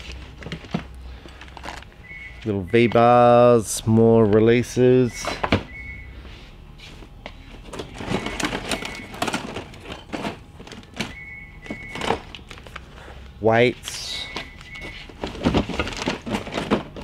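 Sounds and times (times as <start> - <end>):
rustling and crinkling packaging: 0.0 - 2.5, 7.5 - 17.0.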